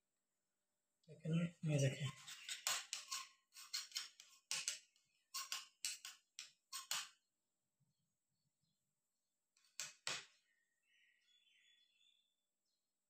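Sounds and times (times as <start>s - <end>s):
knife scraping food: 2.0s - 4.7s, 5.4s - 6.1s, 6.8s - 7.0s.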